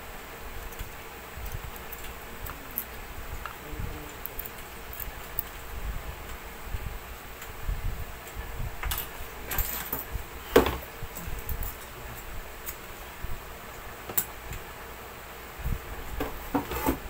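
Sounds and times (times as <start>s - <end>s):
small metal tools clinking: 1.4s - 3.0s.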